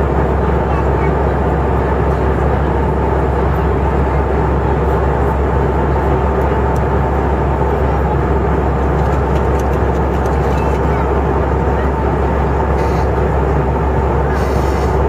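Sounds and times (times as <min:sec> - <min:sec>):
airplane cabin noise: 0:00.0 - 0:15.0
constant low hum: 0:00.0 - 0:15.0.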